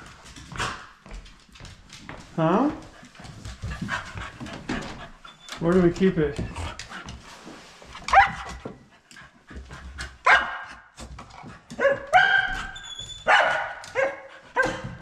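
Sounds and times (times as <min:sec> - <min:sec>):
dog yelping barks: 0:08.1 - 0:08.5, 0:10.2 - 0:10.7, 0:11.8 - 0:14.9.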